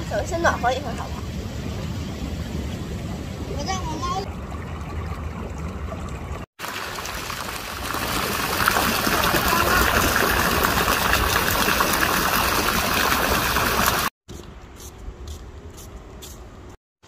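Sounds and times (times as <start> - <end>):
running water in a pool: 0.0 - 14.2.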